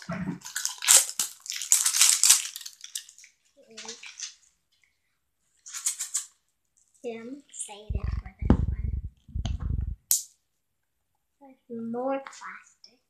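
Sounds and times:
foil crinkling and tearing: 0:00.0 - 0:04.5, 0:05.6 - 0:06.3.

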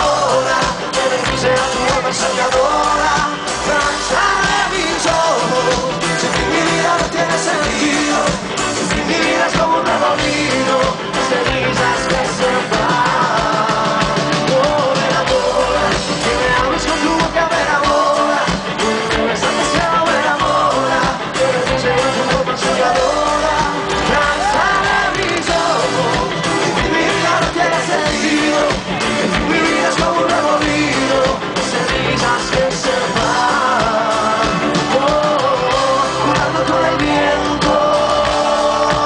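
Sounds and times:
live rock band playing: 0:00.0 - 0:39.0
person singing: 0:00.0 - 0:39.0.

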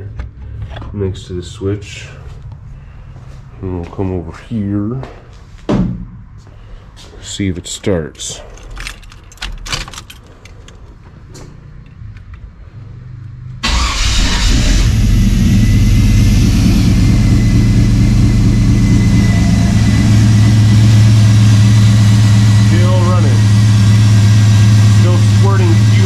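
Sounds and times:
pickup truck engine starting and idling: 0:13.6 - 0:26.0.

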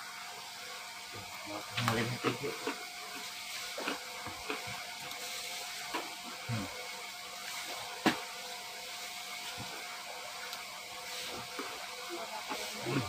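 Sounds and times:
faint background hum: 0:00.0 - 0:13.0.

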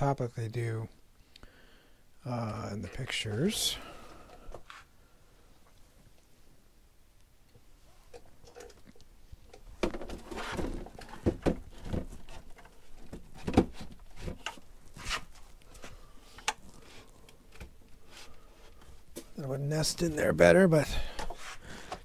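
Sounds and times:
hard cases knocking and scraping: 0:09.5 - 0:15.5.

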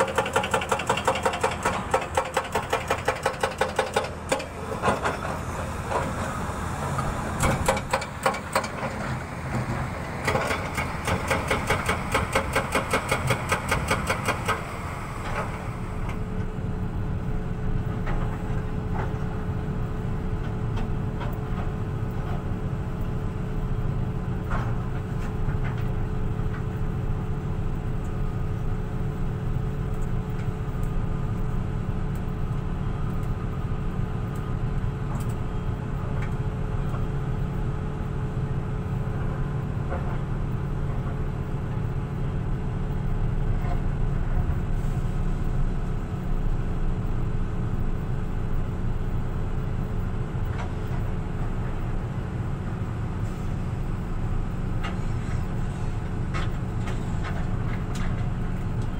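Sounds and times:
excavator diesel engine running: 0:00.0 - 0:22.8.

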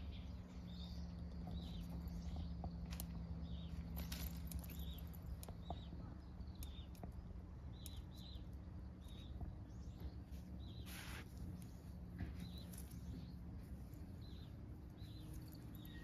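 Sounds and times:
faint low hum: 0:00.0 - 0:16.0
small bird chirping: 0:00.0 - 0:16.0
rustle: 0:10.3 - 0:14.4.

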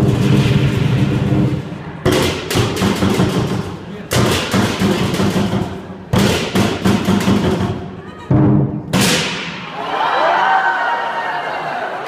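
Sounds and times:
large drum beating: 0:00.0 - 0:09.1.

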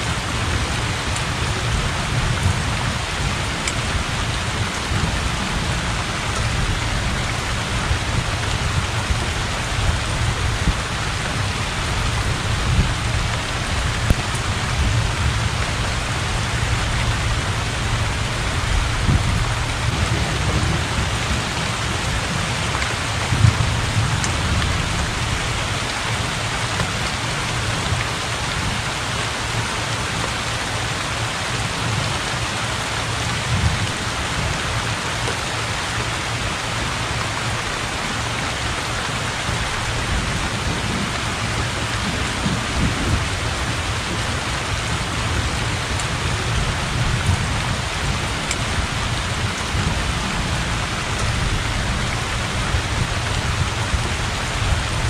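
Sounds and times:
low thunder rumbling: 0:00.0 - 0:27.0, 0:39.5 - 0:55.0
heavy rain on a thatched roof: 0:00.0 - 0:55.0.

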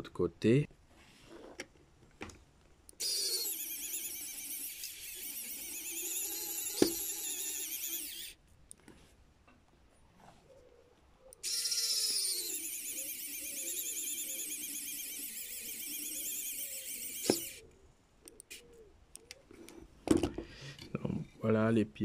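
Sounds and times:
electric screwdriver motor whining: 0:03.0 - 0:08.4, 0:11.4 - 0:17.6.

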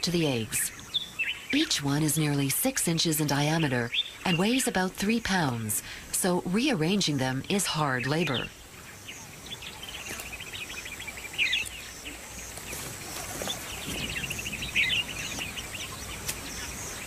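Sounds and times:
birds chirping and trilling: 0:00.0 - 0:17.0.

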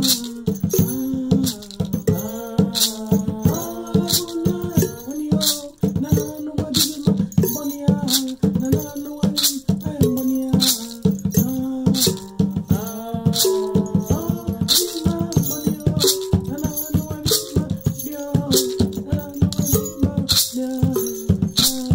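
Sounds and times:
hand drum: 0:00.0 - 0:21.9
shaken rattle: 0:00.0 - 0:21.9
voices singing a devotional song: 0:00.0 - 0:21.9.

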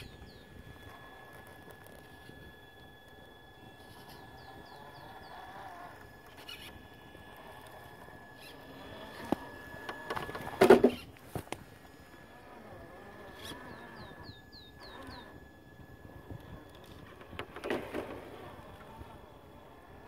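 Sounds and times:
high electronics whine: 0:00.0 - 0:20.0
tyres clicking and scraping on rock: 0:05.3 - 0:11.7.

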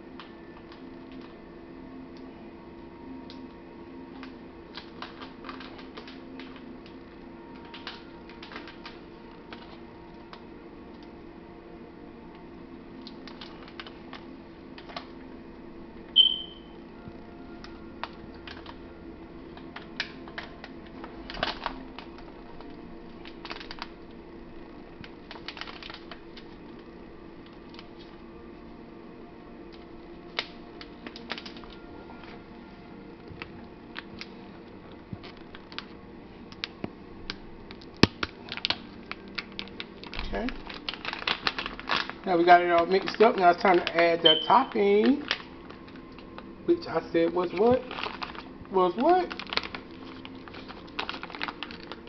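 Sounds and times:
steady low hum: 0:00.0 - 0:52.0
short high-pitched tone: 0:16.2 - 0:16.8.

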